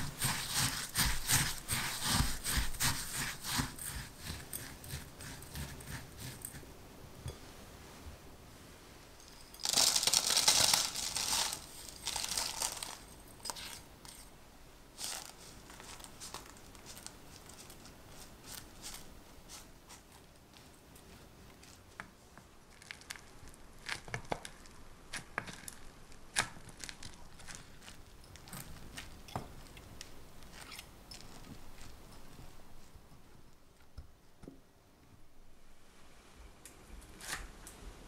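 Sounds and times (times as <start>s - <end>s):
spatula scraping crumbs: 0.0s - 6.7s, 9.6s - 14.3s, 15.0s - 20.7s
parchment paper crinkling: 9.6s - 13.8s, 15.0s - 22.0s, 22.7s - 32.5s.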